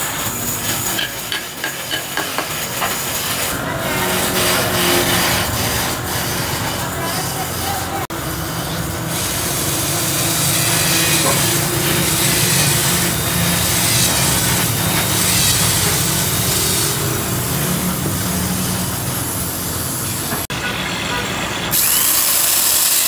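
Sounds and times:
drill bit cutting wood: 0:03.3 - 0:18.6, 0:21.7 - 0:23.0
electric drill motor running: 0:03.9 - 0:19.6, 0:21.7 - 0:23.0.

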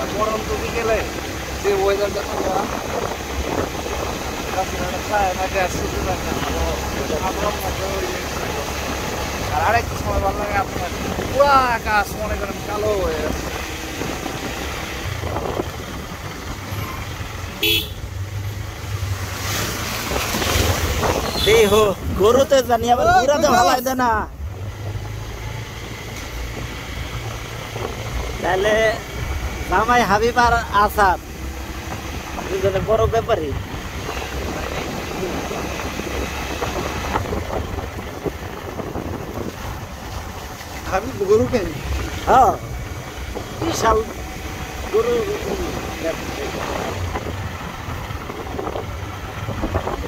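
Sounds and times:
wind rumble: 0:00.0 - 0:23.4, 0:24.3 - 0:50.0
horn beep: 0:17.6 - 0:18.0.

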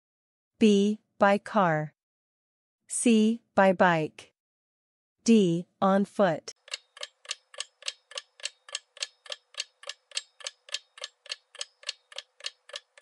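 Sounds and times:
clock ticking: 0:06.5 - 0:13.0.

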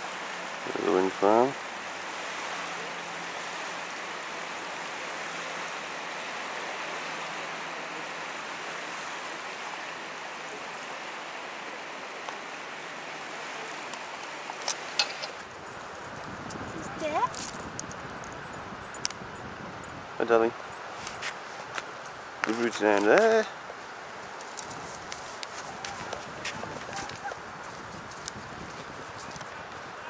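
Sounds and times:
small waves washing on sand: 0:00.0 - 0:19.2, 0:20.0 - 0:30.0.

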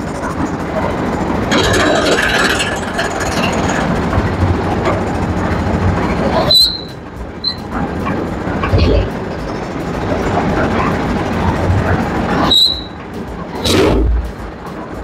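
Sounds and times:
concrete mixer engine running: 0:00.0 - 0:15.0
short high squeal: 0:06.4 - 0:07.7, 0:12.4 - 0:13.0.

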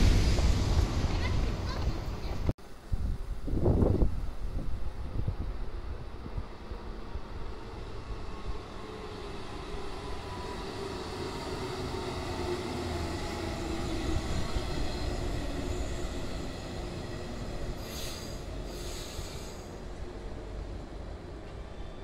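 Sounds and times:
train wheels rumbling on rail: 0:00.0 - 0:22.0
brief hisses: 0:17.8 - 0:19.8.

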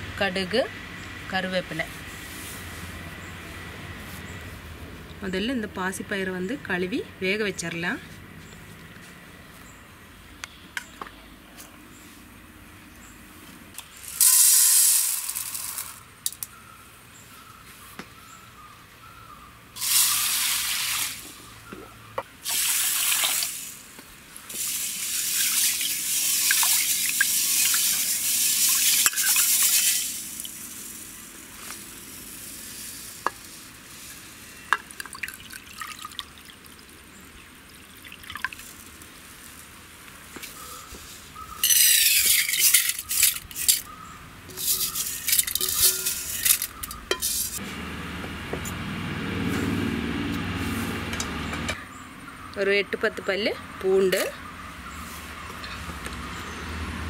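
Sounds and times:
water splashing in a steel bowl: 0:24.6 - 0:31.4, 0:34.6 - 0:39.2
water dripping: 0:25.1 - 0:29.8, 0:34.7 - 0:39.6.

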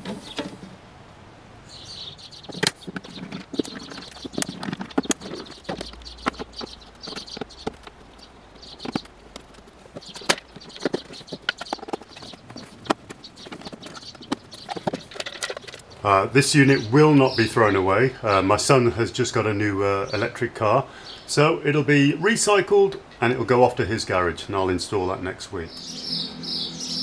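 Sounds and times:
plastic casing and wires handled: 0:02.4 - 0:16.0.

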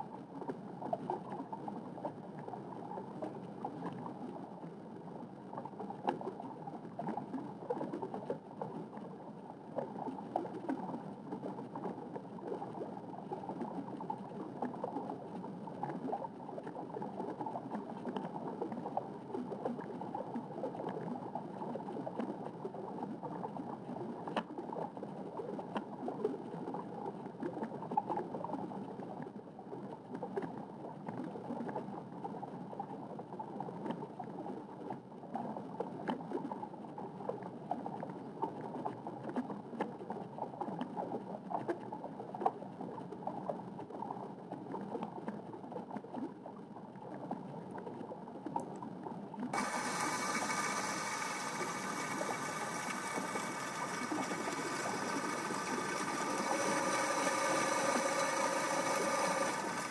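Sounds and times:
faint clicks: 0:49.6 - 0:59.9
underwater bubbling rush: 0:49.6 - 0:59.9.

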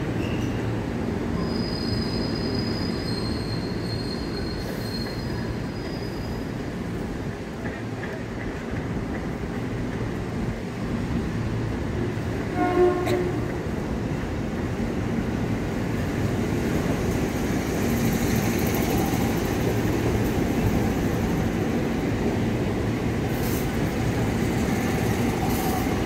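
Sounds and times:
train wheels rumbling on rails: 0:00.0 - 0:26.0
high-pitched wheel squeal: 0:01.4 - 0:06.4.

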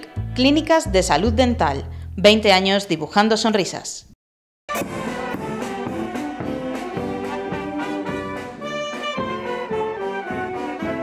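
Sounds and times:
marching wind band playing: 0:04.7 - 0:11.0.

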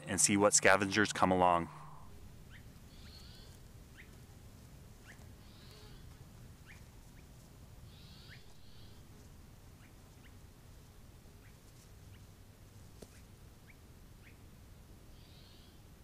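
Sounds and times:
low steady rumble: 0:00.0 - 0:11.3
soft hissy buzzes: 0:00.0 - 0:16.0
faint rising chirps: 0:00.6 - 0:03.5.

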